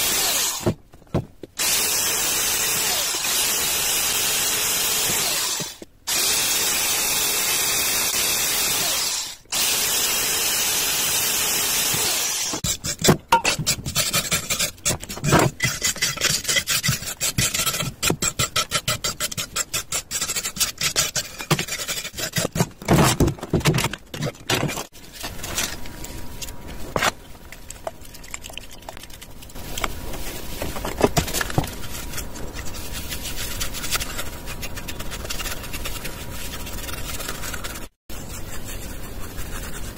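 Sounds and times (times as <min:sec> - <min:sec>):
electric drill boring: 0:00.0 - 0:00.7, 0:01.6 - 0:12.6
hand tool scraping hardened cement: 0:12.0 - 0:26.2, 0:29.5 - 0:39.9
rubbing and handling: 0:12.5 - 0:39.9.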